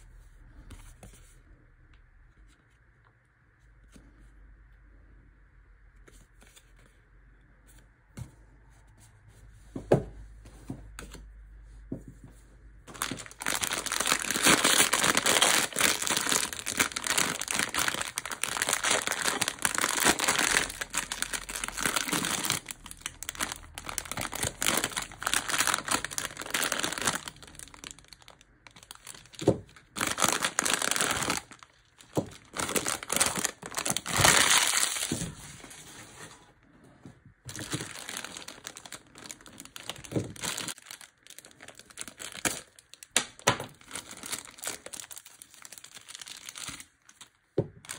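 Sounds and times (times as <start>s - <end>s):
foil bag crinkling and tearing: 12.9s - 35.8s, 37.5s - 47.3s.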